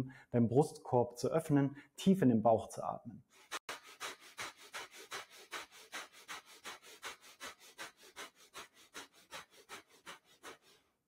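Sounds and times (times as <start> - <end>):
man breathing rapidly through nose: 3.3 - 11.0.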